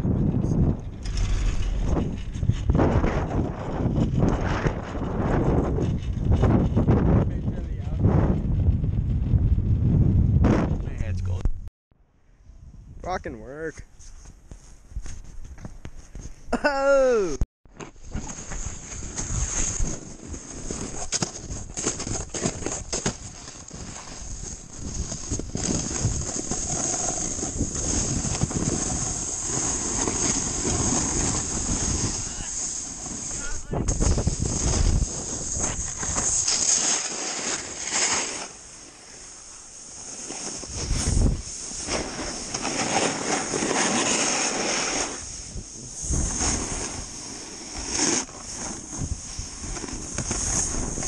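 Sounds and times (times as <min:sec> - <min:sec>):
snowboard scraping over snow: 0:00.0 - 0:08.5, 0:18.0 - 0:51.0
wind on microphone: 0:00.0 - 0:11.7, 0:18.0 - 0:36.6, 0:40.5 - 0:51.0.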